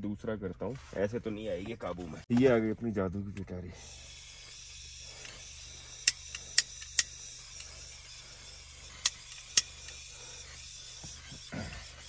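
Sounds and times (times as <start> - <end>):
piezo igniter clicking: 4.4 - 7.8, 8.8 - 10.1.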